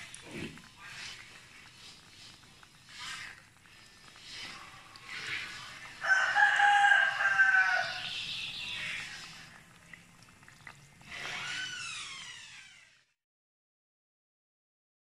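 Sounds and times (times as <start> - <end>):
oil sizzling deep-frying: 0.0 - 13.2
rooster crowing: 6.0 - 8.1.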